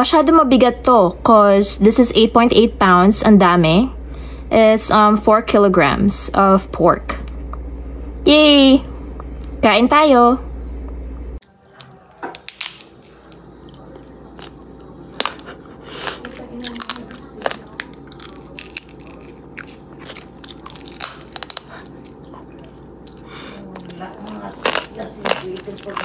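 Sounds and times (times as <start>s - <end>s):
crunching crispy pork skin: 11.4s - 26.0s.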